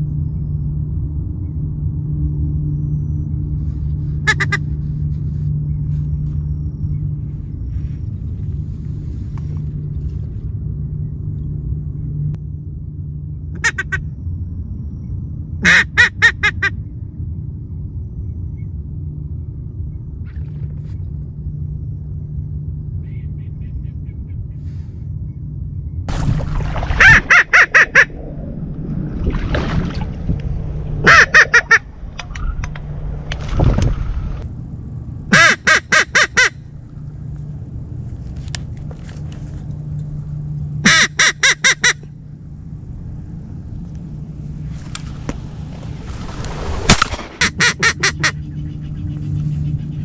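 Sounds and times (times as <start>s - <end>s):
steady low rumble: 0.0s - 50.0s
ducks quacking: 4.2s - 4.6s, 26.6s - 28.2s, 31.0s - 31.9s, 40.8s - 42.0s, 47.4s - 49.7s.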